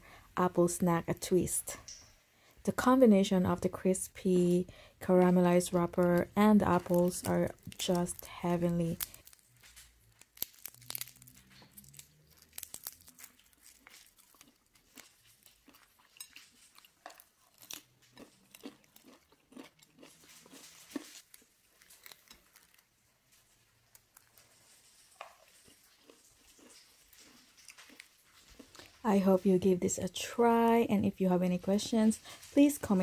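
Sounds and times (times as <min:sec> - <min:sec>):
crisp wrappers crunching: 0:05.5 - 0:29.1.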